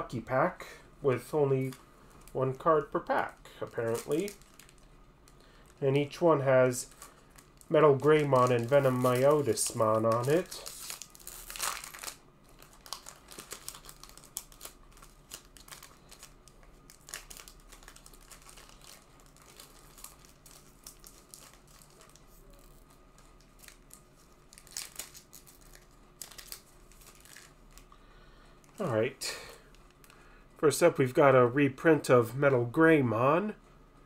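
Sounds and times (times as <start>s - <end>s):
plastic wrapper crinkling and tearing: 1.5s - 28.0s, 29.6s - 30.2s.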